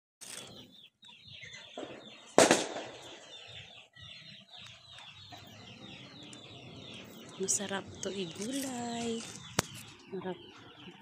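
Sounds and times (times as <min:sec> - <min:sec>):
chickens clucking: 0:00.3 - 0:11.0.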